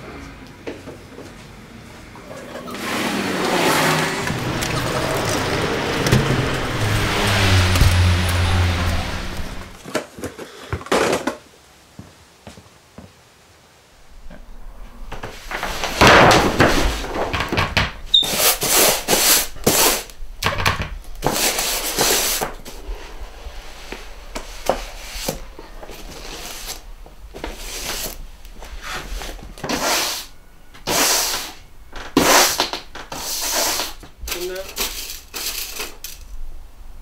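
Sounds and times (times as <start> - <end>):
broom scraping across board: 2.7 - 9.8, 15.1 - 17.4, 18.1 - 20.1, 21.2 - 31.6, 32.2 - 34.0.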